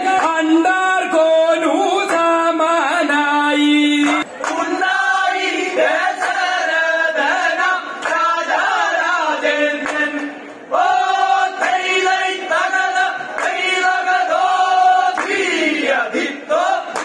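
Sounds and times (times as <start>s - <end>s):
men singing in unison: 0.0s - 17.0s.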